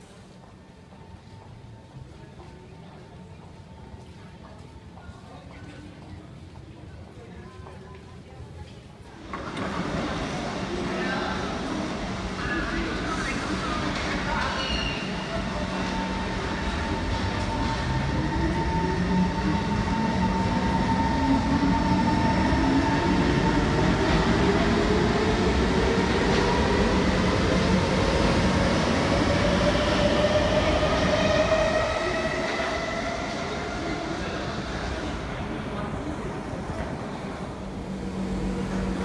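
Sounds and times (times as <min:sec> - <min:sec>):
wheels rumbling on rail: 0:09.0 - 0:39.0.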